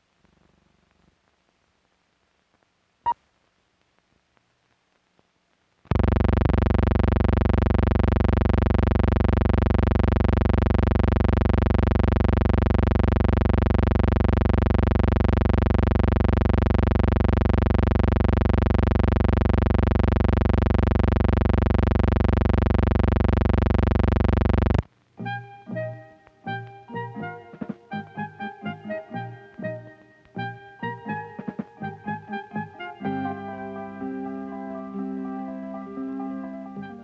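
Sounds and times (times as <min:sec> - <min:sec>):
electronic buzzing tone: 0:05.9 - 0:24.8.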